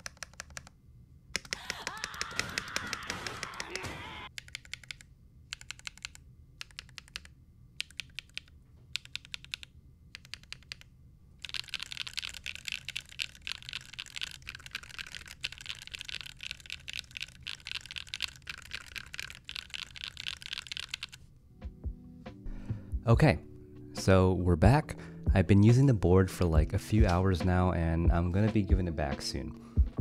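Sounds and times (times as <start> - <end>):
mechanical keyboard typing: 0.0 - 0.7, 1.4 - 21.2.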